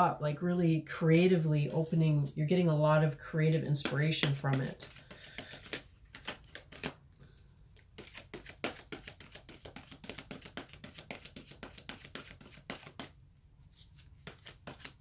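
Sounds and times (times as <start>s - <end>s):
cards being shuffled: 3.8s - 7.0s, 7.7s - 15.0s.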